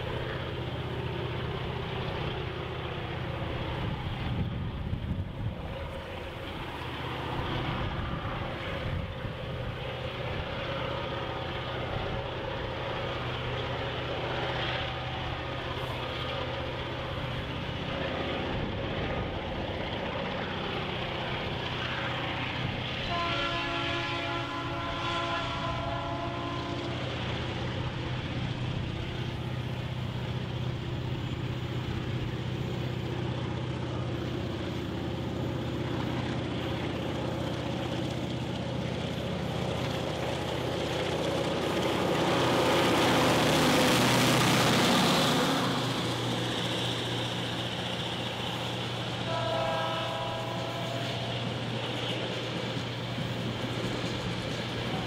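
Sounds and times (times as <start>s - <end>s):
diesel locomotive engine drone: 0.0s - 55.0s
train horn chord: 23.0s - 27.0s, 49.0s - 52.4s.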